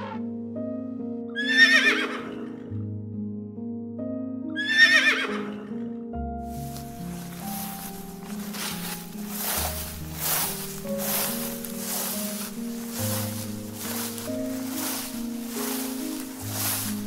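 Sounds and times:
background music: 0.0 - 17.0
horse whinnying: 1.4 - 2.6, 4.6 - 5.7
rustling: 6.5 - 17.0.

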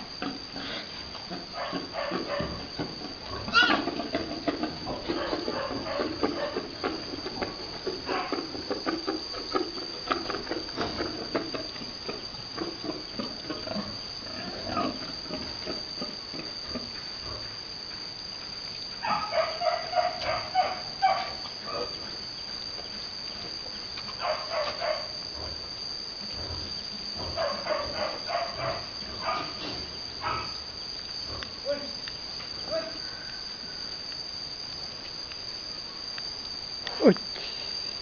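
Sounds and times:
pigs grunting: 0.2 - 7.3, 12.6 - 16.2
pig squealing: 3.4 - 4.0.

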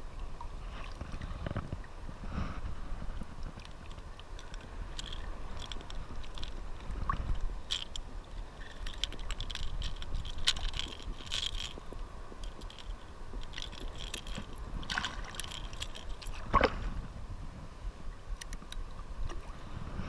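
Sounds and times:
small clicks and scrapes: 0.7 - 16.5, 18.4 - 19.4
shallow surf sloshing: 13.0 - 17.8.

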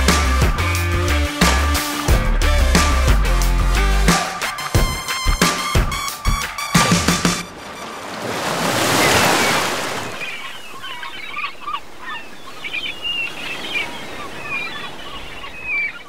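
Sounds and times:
wave washing in: 6.8 - 10.8.

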